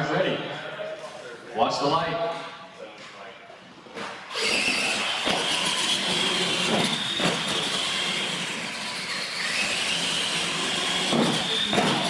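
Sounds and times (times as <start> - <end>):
high whine of motors: 4.3 - 12.0.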